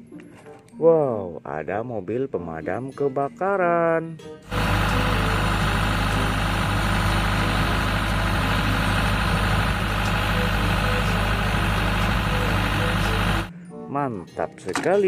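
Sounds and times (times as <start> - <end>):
truck engine idling: 4.5 - 13.5.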